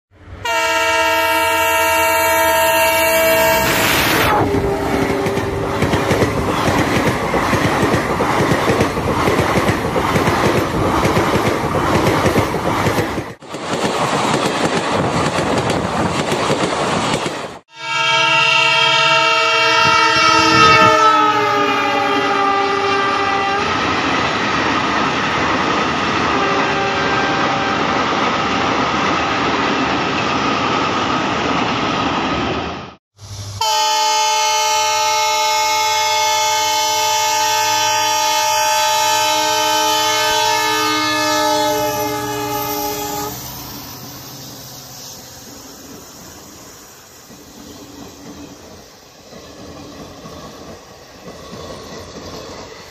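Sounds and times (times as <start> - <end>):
diesel train horn: 0.4 - 6.6, 17.7 - 23.8, 26.2 - 29.6, 33.6 - 43.6
train coaches rattling on track: 0.4 - 32.8, 35.0 - 52.9.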